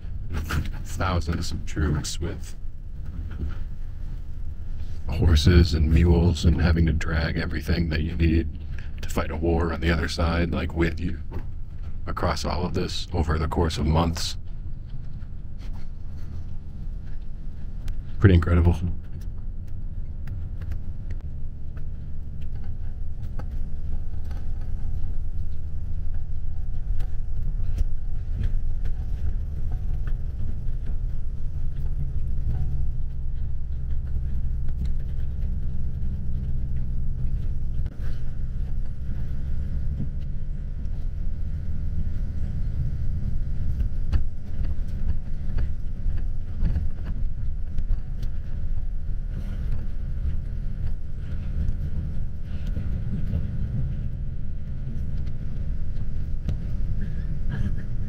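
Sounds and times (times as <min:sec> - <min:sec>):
bus road and engine rumble: 0:00.0 - 0:58.0.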